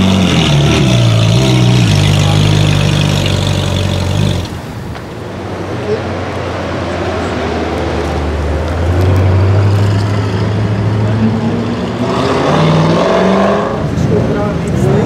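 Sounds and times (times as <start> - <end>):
car accelerating: 0.0 - 4.9
car engine idling: 0.0 - 6.0.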